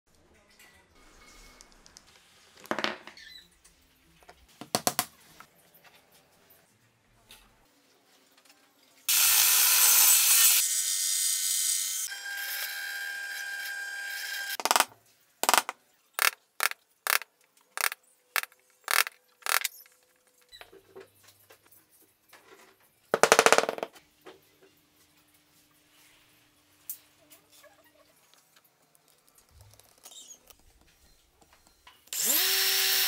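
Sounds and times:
power tool cutting: 9.1 - 14.6, 32.2 - 33.0.

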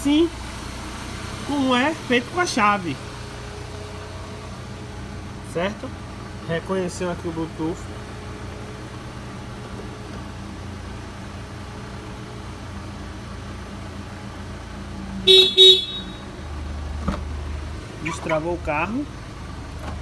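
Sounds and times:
car engine idling: 0.0 - 20.0
car alarm toots: 15.3 - 16.3.

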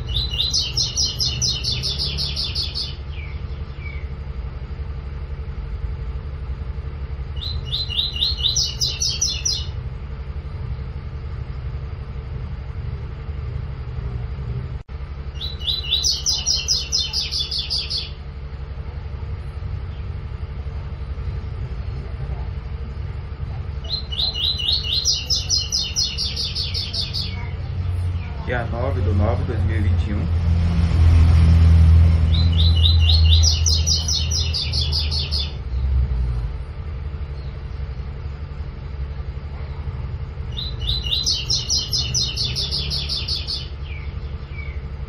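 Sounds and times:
bird singing rapid repeated notes: 0.0 - 5.5, 6.9 - 10.2, 15.1 - 18.6, 23.7 - 30.5, 31.6 - 36.1, 40.2 - 45.0
steady low hum: 0.0 - 45.0.

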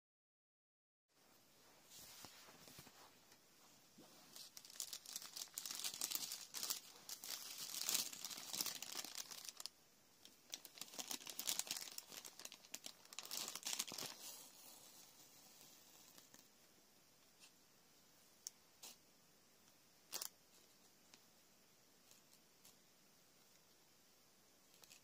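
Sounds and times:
tissue paper crinkling: 4.0 - 16.5.

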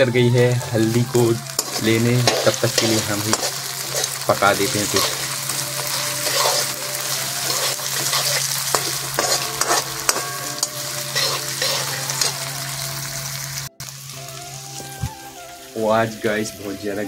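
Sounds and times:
vegetables sizzling in oil: 0.0 - 17.0
metal spatula scraping pan: 0.8 - 12.4.

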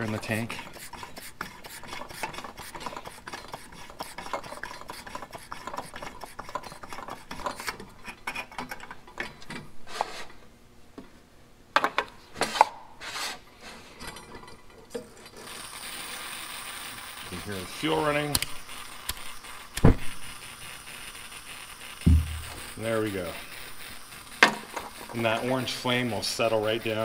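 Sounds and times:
hand air pump strokes: 0.0 - 8.9, 15.3 - 27.0
sharp clicks and knocks: 22.0 - 22.6.

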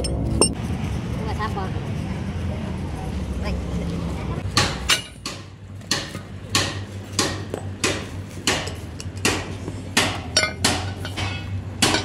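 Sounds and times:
low steady hum: 0.0 - 1.3
hammer striking metal: 4.5 - 12.0.

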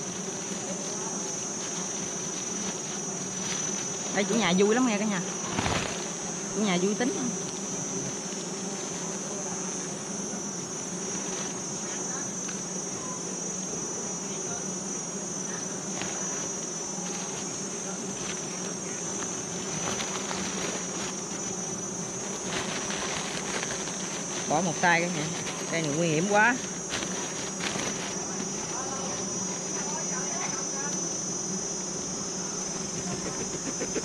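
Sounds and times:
bees buzzing: 0.0 - 34.0
high-pitched insect tone: 0.0 - 34.0.

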